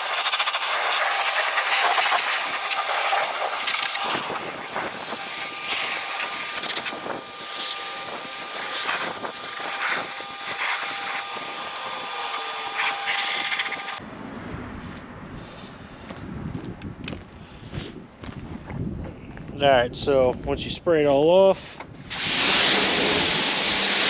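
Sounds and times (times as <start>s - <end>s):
pressure washer spraying: 0.0s - 14.0s, 22.1s - 24.0s.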